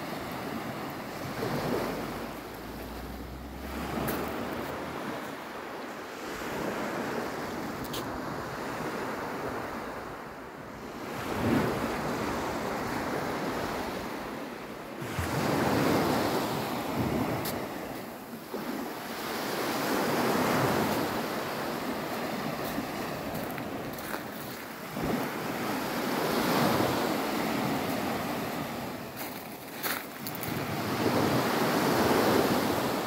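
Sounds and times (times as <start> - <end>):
small waves breaking on shore: 0.0 - 33.0.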